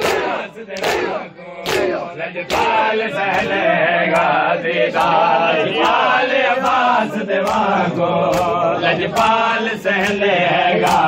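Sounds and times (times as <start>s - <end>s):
hands slapping chests: 0.0s - 3.5s, 7.4s - 9.4s, 10.8s - 11.0s
men chanting in unison: 0.0s - 11.0s.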